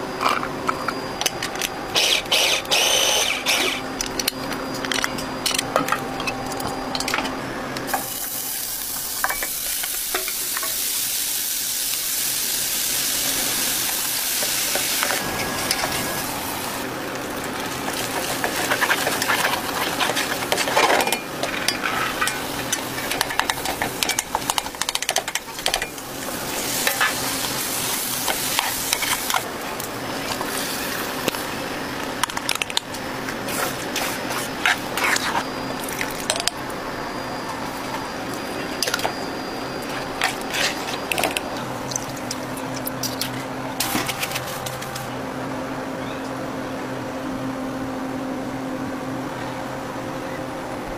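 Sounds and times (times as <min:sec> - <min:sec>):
meat sizzling in a pot: 0:07.9 - 0:29.4
wooden spoon scraping a pot: 0:17.9 - 0:22.4.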